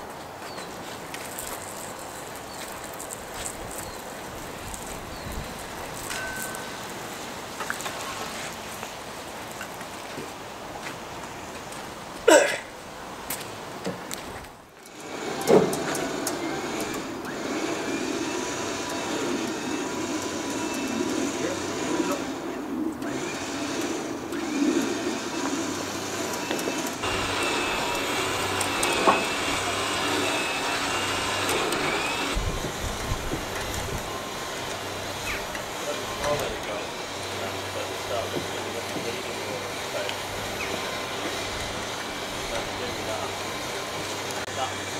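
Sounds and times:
thin high whine: 3.1s - 8.7s.

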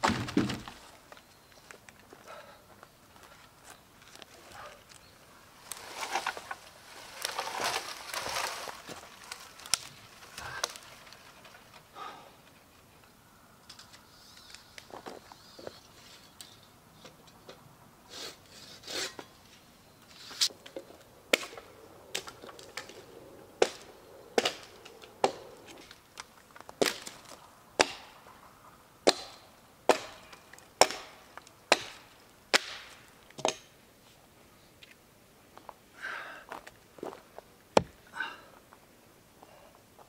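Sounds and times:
axe chopping log: 21.3s - 22.4s, 23.6s - 25.4s, 27.8s - 28.2s, 29.0s - 33.7s, 37.8s - 38.0s.

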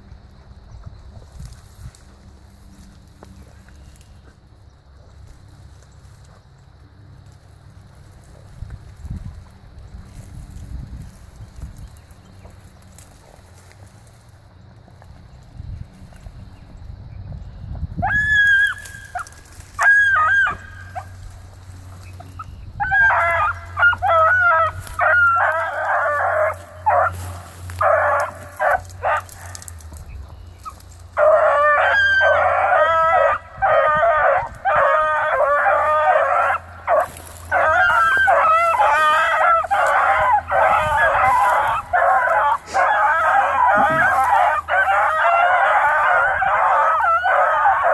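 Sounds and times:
hounds baying: 18.0s - 47.9s.

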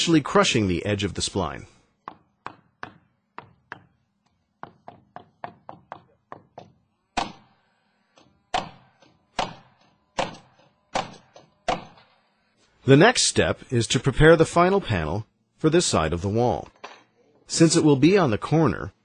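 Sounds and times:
hammer driving nails into wood: 2.0s - 4.0s, 4.6s - 7.5s, 8.2s - 12.1s.

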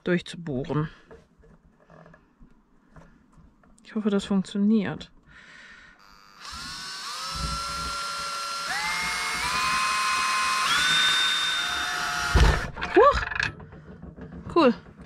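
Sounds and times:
electric drill whining: 6.0s - 13.0s.

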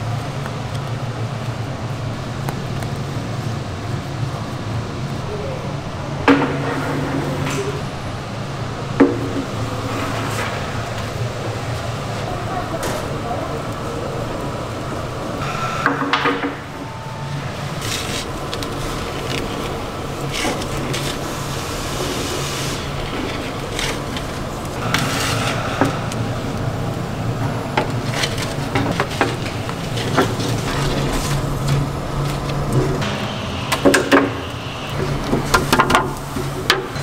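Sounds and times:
low kitchen hum: 0.0s - 37.0s
wooden boards knocking on metal oven: 9.0s - 9.6s.

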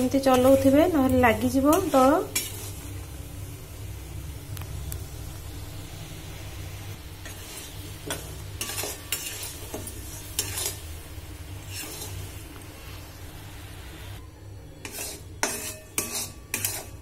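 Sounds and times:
spatula scraping metal pan: 0.0s - 3.0s, 7.2s - 10.9s, 11.6s - 13.1s, 14.8s - 17.0s
syrup bubbling and sizzling: 0.0s - 14.2s.

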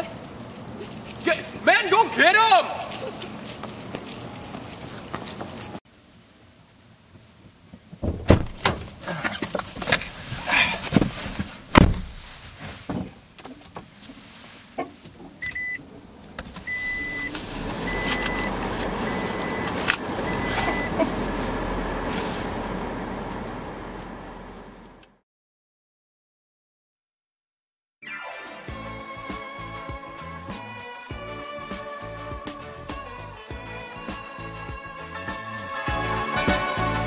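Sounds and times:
clunks and knocks in car: 8.0s - 9.0s, 10.7s - 12.3s
car warning chime beeping: 15.4s - 15.8s, 16.6s - 21.0s
low engine hum: 15.8s - 25.2s.

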